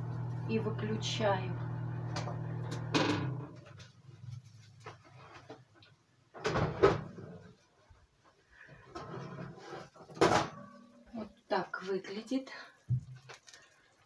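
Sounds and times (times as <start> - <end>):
oven fan hum: 0.0 - 4.4.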